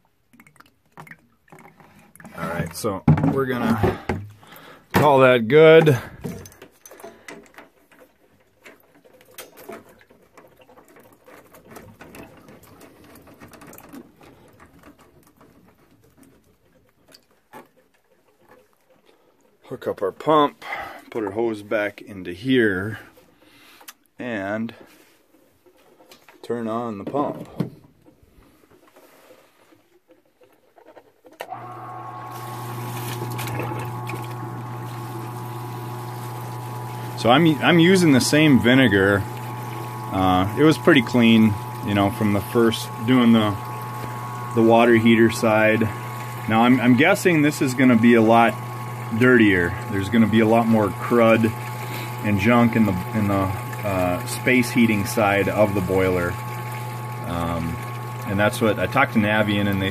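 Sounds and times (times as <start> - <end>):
hoses and fittings clicking: 0.0 - 21.2, 23.2 - 59.9
liquid churning in a bucket: 0.0 - 23.9, 28.0 - 59.9
pump humming: 1.6 - 7.3, 31.4 - 59.9.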